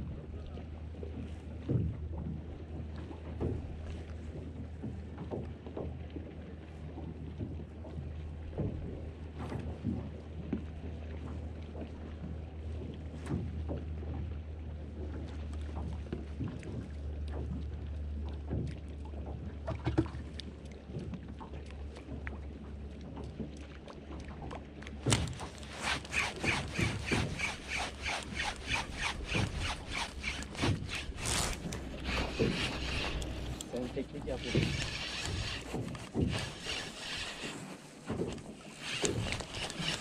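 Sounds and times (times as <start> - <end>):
boat engine hum: 0.0 - 40.0
fast even clicks: 25.1 - 40.0.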